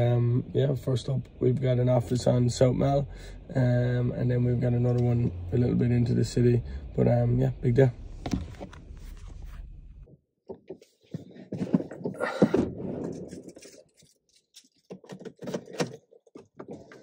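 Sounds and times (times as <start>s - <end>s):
low rumble: 0.0s - 10.1s
rustling inside a car: 7.0s - 10.1s.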